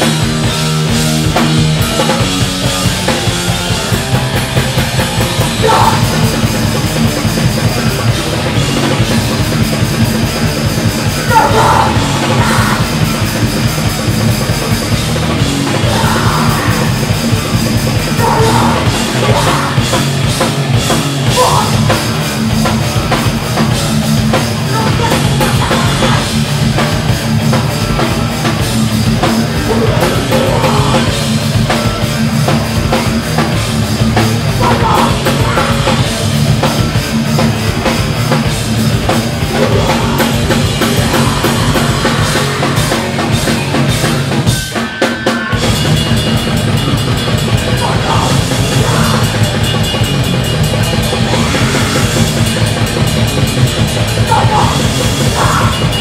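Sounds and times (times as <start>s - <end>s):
heavy rock band playing: 0.0s - 56.0s
shouted vocals: 5.5s - 6.3s, 11.2s - 13.1s, 15.6s - 17.1s, 18.1s - 20.0s, 21.2s - 22.1s, 24.6s - 26.4s, 29.6s - 31.4s, 34.4s - 36.2s, 39.5s - 43.2s, 47.7s - 49.6s, 54.2s - 56.0s.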